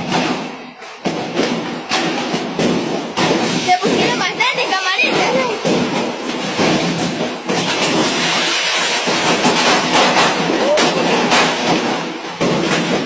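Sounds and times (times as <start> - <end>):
sharp crackles of sparks: 5.6 - 12.9.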